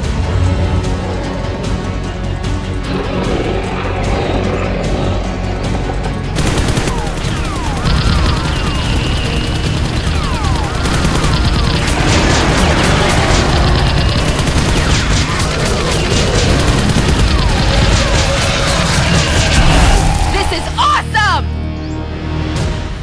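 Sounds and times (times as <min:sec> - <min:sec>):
action music: 0:00.0 - 0:23.0
rapid gunfire: 0:06.4 - 0:20.2
swooping whistle-like tones: 0:06.9 - 0:12.0.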